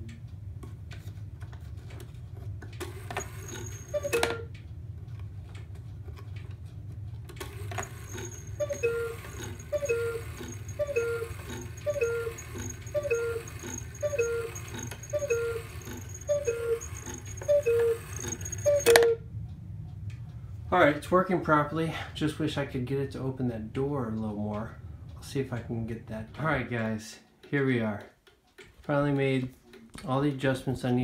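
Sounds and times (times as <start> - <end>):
clock mechanism click: 2.7 - 4.7, 7.3 - 19.2
two-note cuckoo calls: 8.2 - 19.2.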